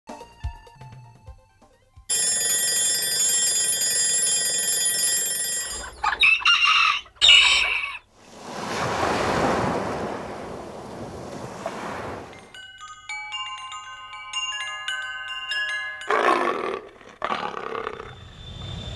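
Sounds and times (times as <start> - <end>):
rushing noise: 18.0 - 18.9.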